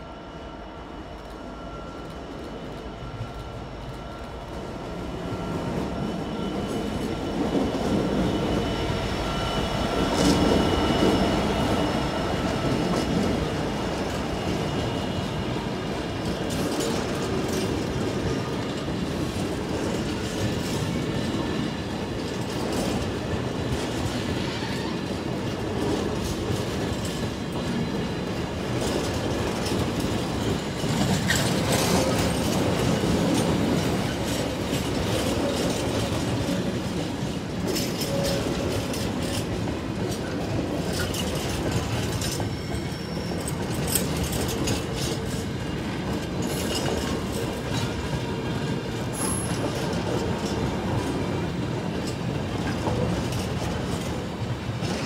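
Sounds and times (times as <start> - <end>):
faint wheel squeal: 42.2 - 44.0.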